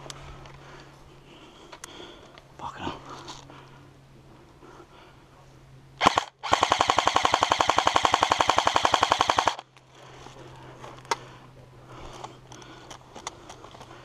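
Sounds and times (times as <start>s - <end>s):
airsoft rifle firing bursts: 6.0s - 9.7s.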